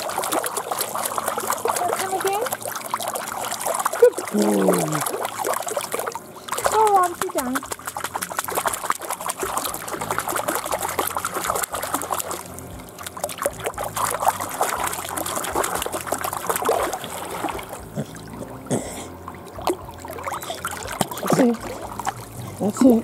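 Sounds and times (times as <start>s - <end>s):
dog paddling in pool water: 0.0s - 23.0s
water dripping: 0.0s - 23.0s.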